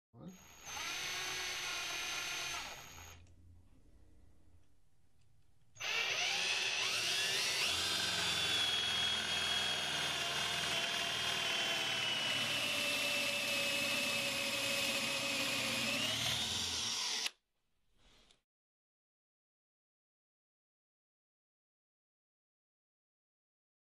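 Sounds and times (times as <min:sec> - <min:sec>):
drill boring into wood: 0:00.2 - 0:03.2, 0:05.8 - 0:17.4
cordless drill whining: 0:00.2 - 0:03.3, 0:05.8 - 0:17.4.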